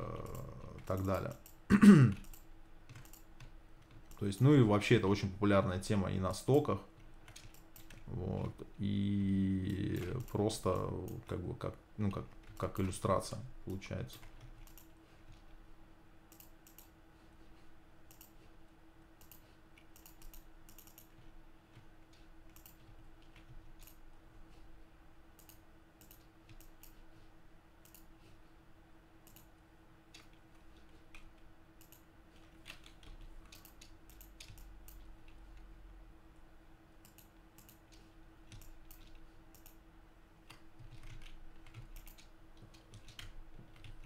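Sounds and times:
steady hum: 0.0s - 44.0s
computer keyboard clicking: 0.2s - 4.5s, 7.0s - 8.5s, 14.1s - 15.4s, 16.3s - 16.9s, 18.1s - 18.4s, 19.2s - 24.0s, 25.4s - 27.0s, 27.8s - 28.1s, 30.1s - 35.4s, 37.0s - 39.8s, 40.5s - 44.0s
mouse clicks: 16.3s - 16.9s, 18.1s - 18.4s, 19.2s - 21.1s, 25.4s - 27.0s, 27.8s - 28.1s, 30.2s - 32.1s, 33.4s - 35.1s, 37.0s - 39.8s.

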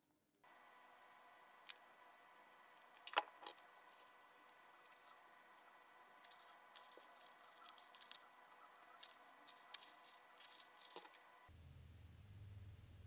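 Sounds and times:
faint steady hum: 0.0s - 13.0s
sharp clicks and scrapes: 6.2s - 11.3s.

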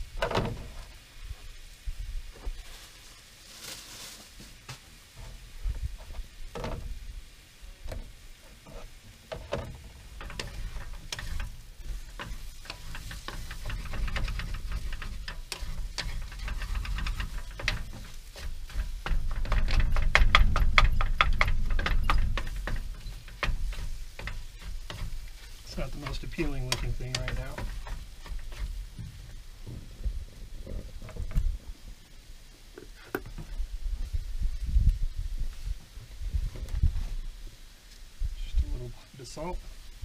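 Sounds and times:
wooden spatula scraping frying pan: 8.4s - 29.8s.

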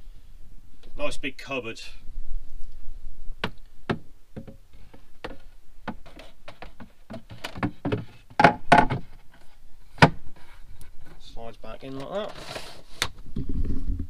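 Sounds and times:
wooden shelf knocking in cupboard: 6.7s - 9.0s.

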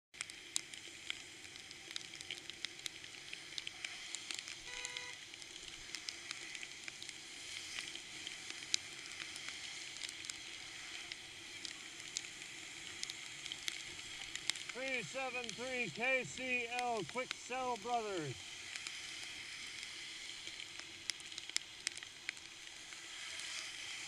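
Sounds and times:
bicycle tyres hissing on wet road: 0.2s - 15.2s, 18.4s - 24.0s
raindrops ticking on camera: 0.2s - 24.0s
vehicle horn honk: 4.7s - 5.2s.

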